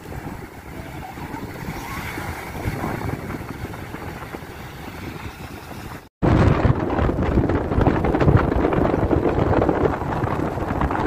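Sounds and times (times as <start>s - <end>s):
small waves washing onto sand: 0.0s - 6.1s
wind buffeting microphone: 0.0s - 11.0s.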